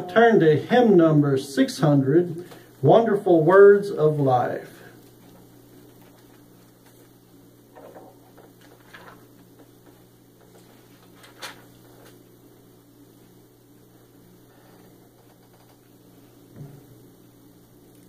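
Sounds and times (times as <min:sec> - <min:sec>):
low electrical hum: 0:00.0 - 0:18.0
paper pages rustling: 0:05.0 - 0:12.2.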